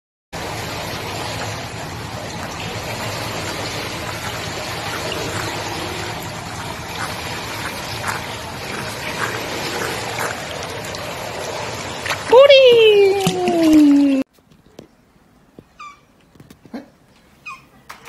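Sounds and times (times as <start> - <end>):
short splashes: 0.4 - 14.2
dog paddling in pool water: 0.4 - 14.3.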